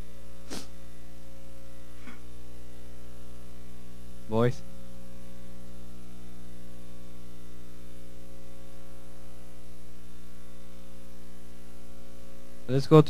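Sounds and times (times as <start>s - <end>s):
electrical mains hum: 0.0s - 13.0s
light hiss: 0.4s - 0.8s.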